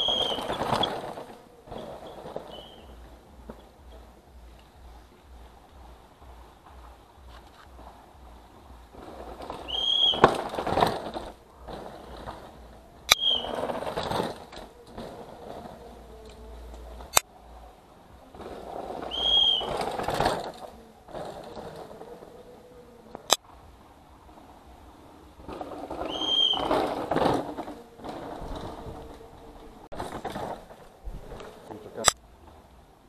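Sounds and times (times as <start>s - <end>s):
short high whistle: 0.0s - 0.5s, 9.7s - 10.2s, 13.1s - 13.6s, 19.1s - 19.7s, 26.0s - 26.7s
mountain bikes passing on dirt: 0.0s - 33.0s.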